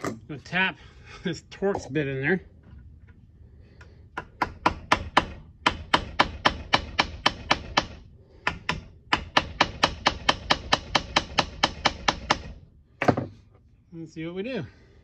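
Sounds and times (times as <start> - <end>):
hammer tapping metal: 4.2 - 13.3.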